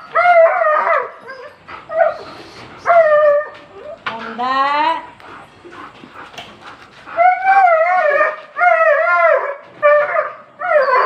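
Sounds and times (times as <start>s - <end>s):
dog howling calls: 0.0s - 3.9s, 7.2s - 11.0s.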